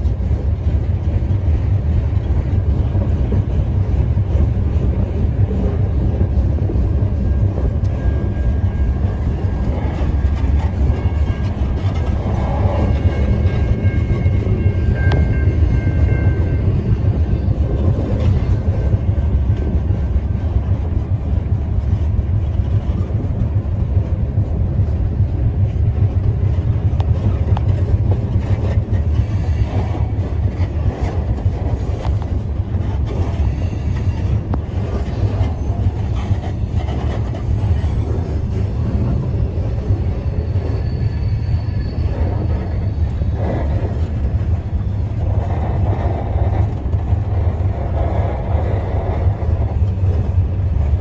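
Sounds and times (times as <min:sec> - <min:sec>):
rail car wheels rumbling: 0:00.0 - 0:51.0
faint high squeal: 0:10.7 - 0:17.3, 0:37.2 - 0:43.9.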